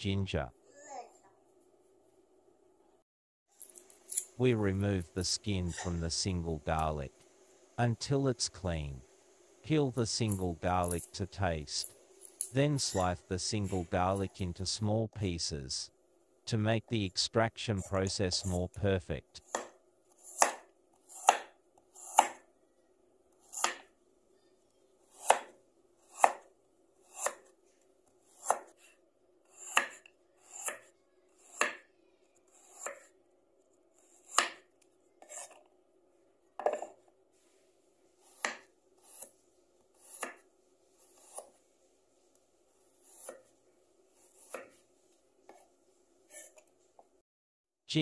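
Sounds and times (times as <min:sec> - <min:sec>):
faint steady hum: 0:03.6 - 0:28.5
knife chopping on wooden board: 0:19.4 - 0:22.4, 0:23.5 - 0:23.9, 0:25.2 - 0:25.5, 0:26.1 - 0:26.5, 0:28.4 - 0:28.7, 0:29.6 - 0:30.9, 0:31.5 - 0:31.8, 0:34.2 - 0:35.6, 0:38.3 - 0:39.3, 0:40.0 - 0:40.4, 0:44.3 - 0:44.8.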